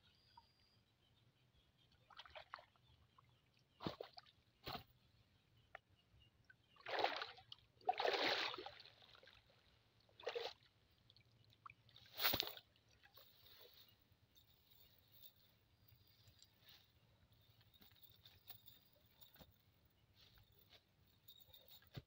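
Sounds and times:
water splashing and sloshing: 0:02.0 - 0:04.9, 0:06.8 - 0:13.8.

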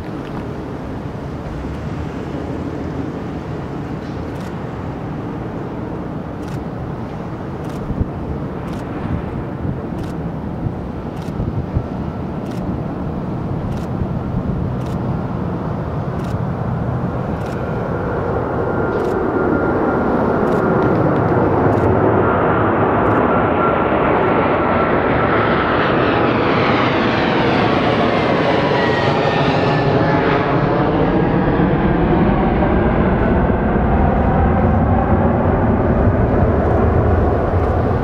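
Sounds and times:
jet engine roar at takeoff: 0:00.0 - 0:38.0
steady engine whine: 0:00.0 - 0:38.0.

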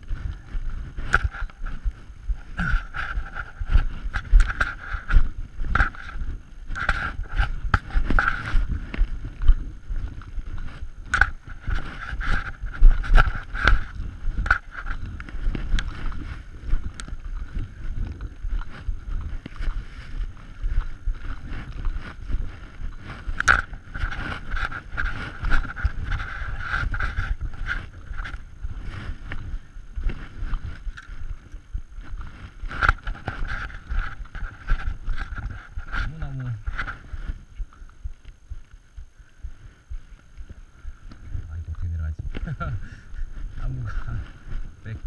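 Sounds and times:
footsteps crunching through snow: 0:00.0 - 0:45.0.

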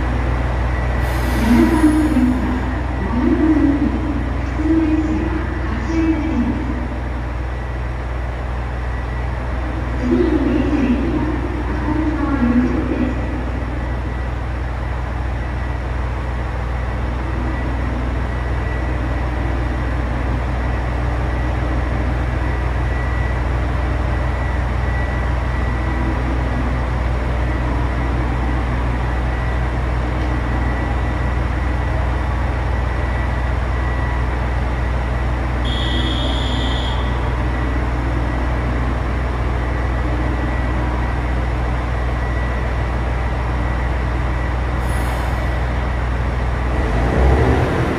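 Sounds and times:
brief higher tone: 0:35.6 - 0:37.3.

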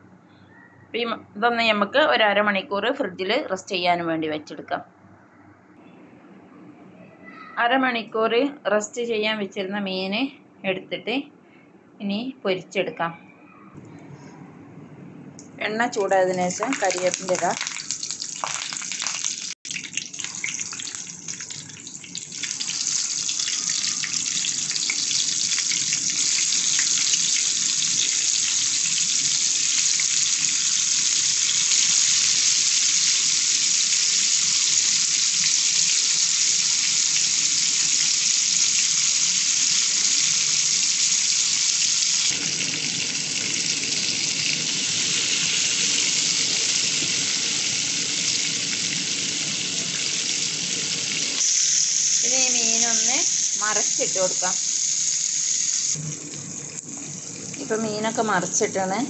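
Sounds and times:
leaves crackling in hot oil: 0:16.4 - 0:58.7
fish frying with loud sizzle: 0:16.5 - 0:58.6.

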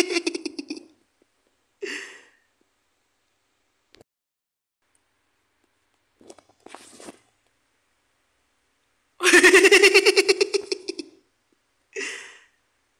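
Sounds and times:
cartoon character giggling: 0:00.0 - 0:00.9, 0:09.2 - 0:11.2.

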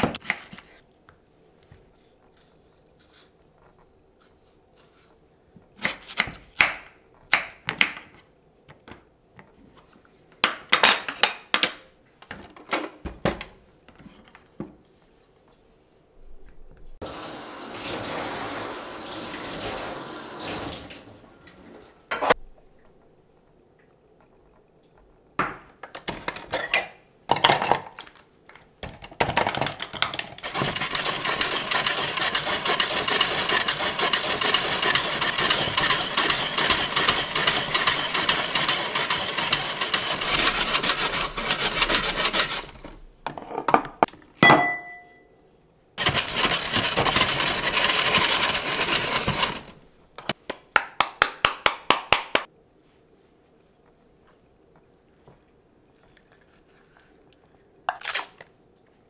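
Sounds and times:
ice machine crunchy rasping: 0:29.6 - 0:43.0, 0:46.0 - 0:49.8.

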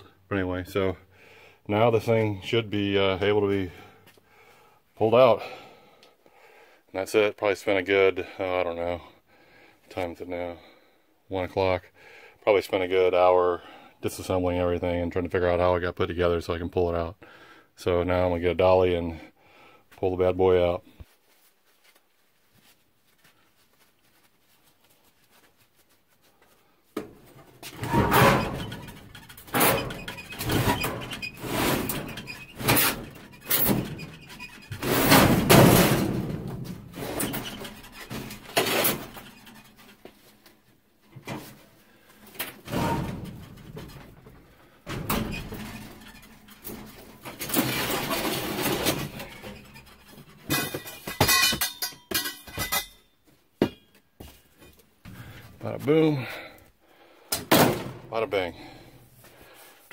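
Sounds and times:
metal cabinet thunks and scrapes: 0:27.1 - 0:40.0, 0:42.5 - 0:51.4, 0:57.4 - 0:58.1
ringing metallic clatter: 0:48.9 - 0:53.1.

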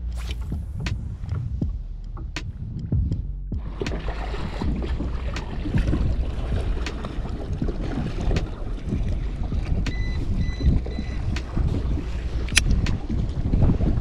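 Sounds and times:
water lapping against hull: 0:00.0 - 0:14.0
wind buffeting microphone: 0:00.0 - 0:14.0
high beeps: 0:09.9 - 0:11.5
sharp clicks: 0:12.4 - 0:13.0.

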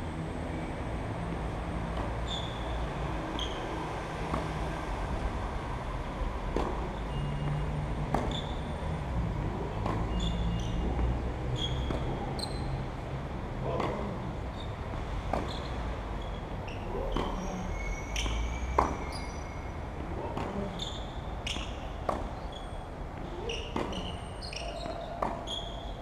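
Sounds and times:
tennis ball hit by rackets: 0:04.2 - 0:04.6, 0:06.5 - 0:08.6, 0:09.4 - 0:10.2, 0:11.7 - 0:12.4, 0:13.7 - 0:14.2, 0:15.2 - 0:15.7, 0:16.9 - 0:19.3, 0:20.2 - 0:20.8, 0:21.4 - 0:22.5, 0:23.1 - 0:25.7.

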